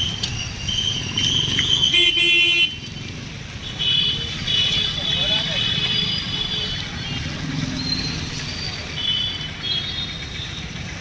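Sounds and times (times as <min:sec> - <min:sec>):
passing road traffic: 0:00.0 - 0:11.0.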